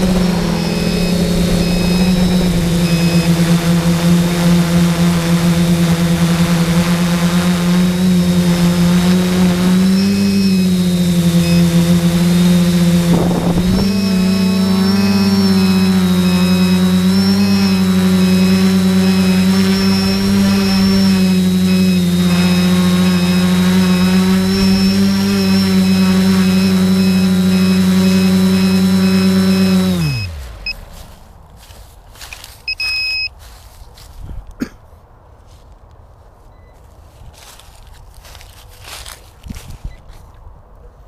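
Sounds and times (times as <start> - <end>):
drone motors and propellers: 0.0 - 31.3
short electronic beep: 0.5 - 3.3, 32.7 - 33.4.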